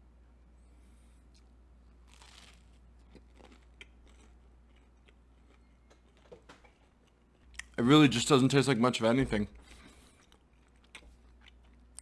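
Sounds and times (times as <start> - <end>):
bite torn from waffle: 2.1 - 4.3
soft chewing clicks: 10.1 - 12.0.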